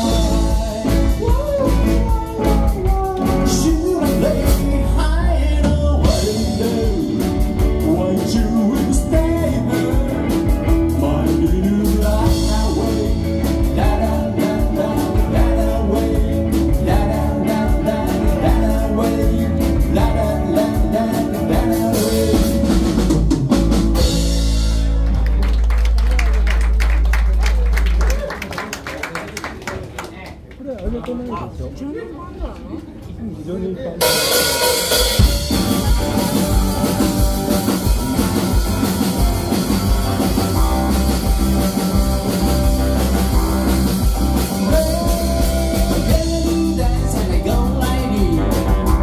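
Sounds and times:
man singing lead vocal: 0.0 - 23.2, 35.2 - 49.0
drum kit beat: 0.0 - 25.5, 34.0 - 49.0
electric guitars: 0.0 - 28.3, 34.0 - 49.0.

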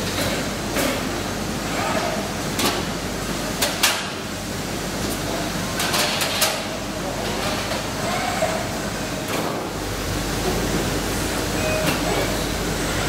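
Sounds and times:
cage-washing machinery noise: 0.0 - 13.0.

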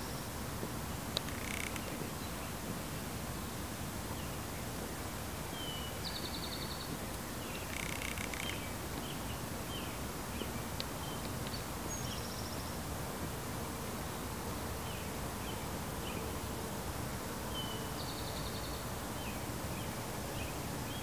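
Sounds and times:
outdoor background noise: 0.0 - 21.0.

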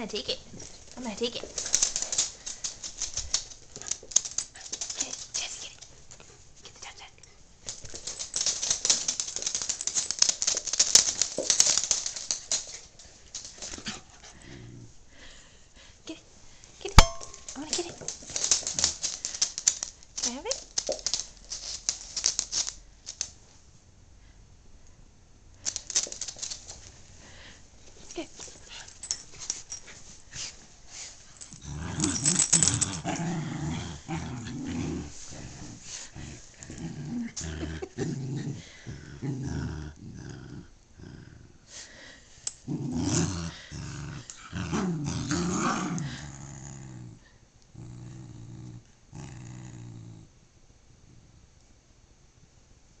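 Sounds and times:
dogs scuffling: 0.2 - 6.7, 7.6 - 14.2, 17.0 - 23.4, 25.7 - 27.2
dogs growling in play: 13.6 - 15.4, 31.4 - 50.4.

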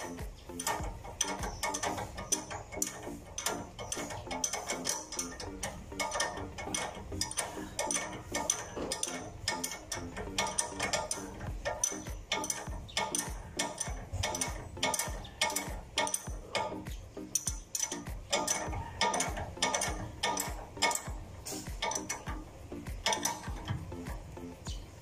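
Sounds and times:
ratchet wrench clicking: 0.0 - 25.0.

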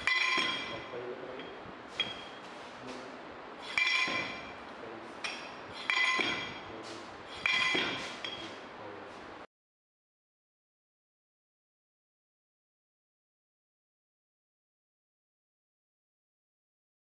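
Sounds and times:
metal rammer striking soil: 0.0 - 2.6, 3.6 - 4.7, 5.3 - 8.6.

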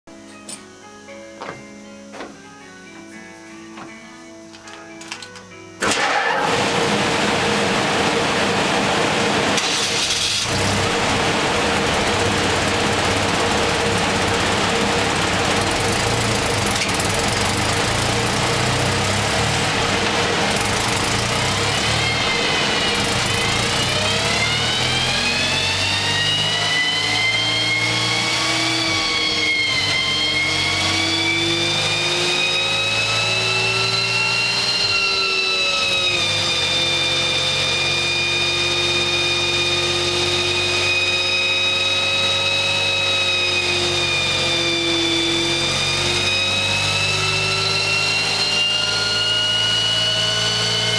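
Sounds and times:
dynamometer whine: 5.4 - 50.9
motorcycle engine running under load: 5.9 - 50.9.

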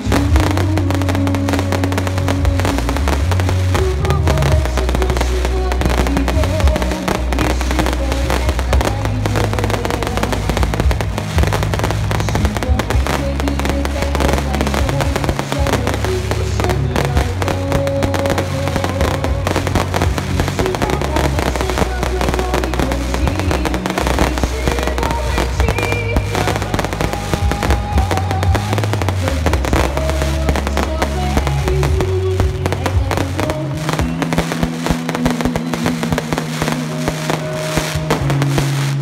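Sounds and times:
fireworks bursting and crackling: 0.0 - 39.0
music with heavy bass: 0.0 - 39.0.

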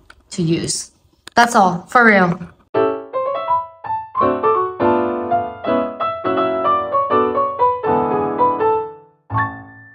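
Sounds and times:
piano music: 2.8 - 9.9.

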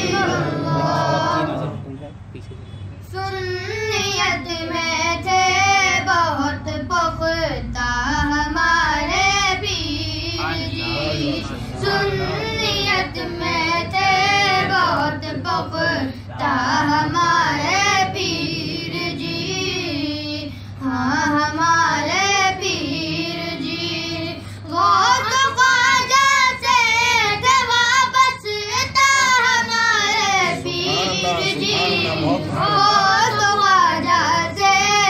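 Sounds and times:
person singing devotional song: 3.1 - 35.0.

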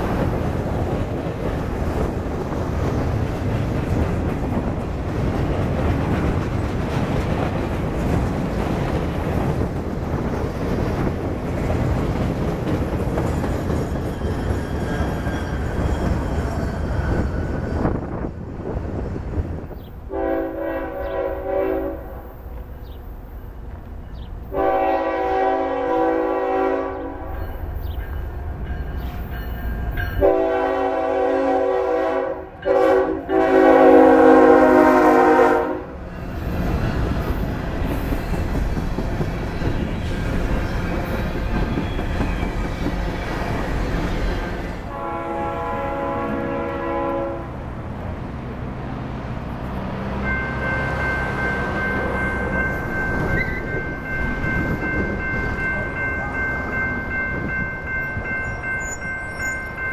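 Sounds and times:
train rumbling and rattling on rails: 0.0 - 59.9
train air horn blasts: 20.1 - 22.3, 24.5 - 27.4, 30.2 - 36.0, 44.9 - 47.6.

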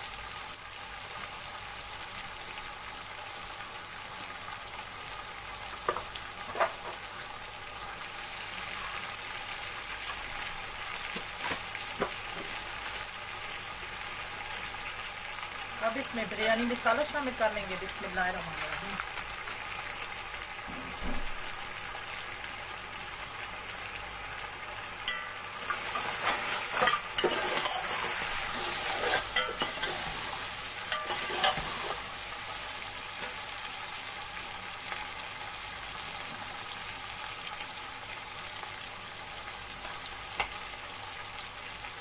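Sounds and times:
vegetables sizzling in hot oil: 0.0 - 42.0
metal spatula scraping a pot: 25.1 - 32.1.

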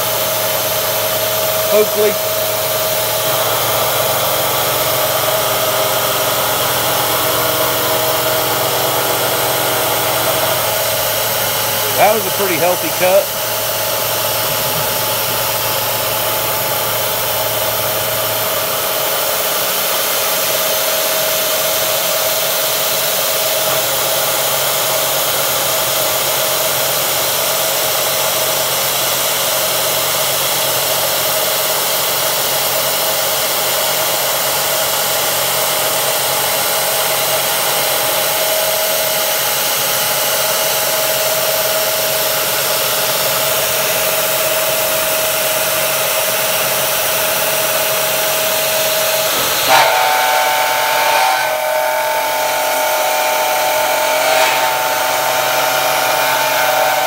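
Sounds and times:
milling machine cutting whine: 0.1 - 22.8, 35.5 - 57.0.

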